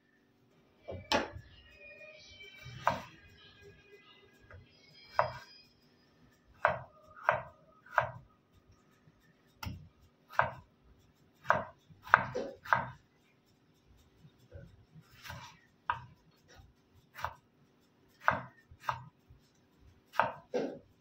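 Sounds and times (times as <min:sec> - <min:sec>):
knife slicing tomatoes: 0:02.6 - 0:03.1, 0:05.0 - 0:05.5, 0:06.6 - 0:08.2, 0:09.6 - 0:10.7, 0:11.4 - 0:13.1, 0:14.5 - 0:17.4, 0:18.2 - 0:19.2, 0:20.0 - 0:20.9.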